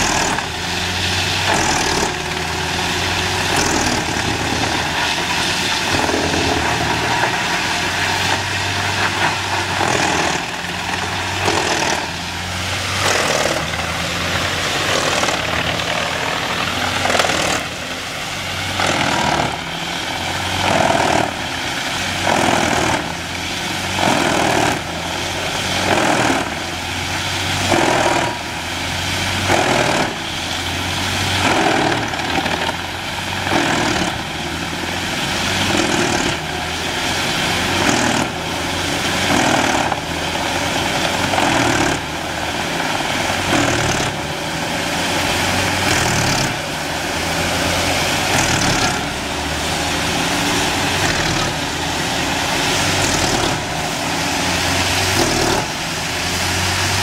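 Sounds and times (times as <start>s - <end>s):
wood chipper chewing logs: 0.0s - 57.0s.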